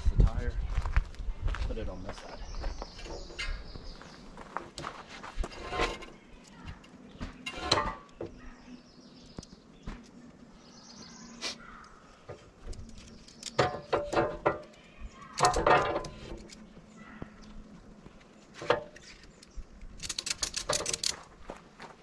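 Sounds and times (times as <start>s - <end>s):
birds chirping faintly: 1.7s - 22.0s
metal parts clicking and rattling: 12.6s - 16.7s, 18.6s - 21.4s
metal clatter: 20.0s - 21.3s.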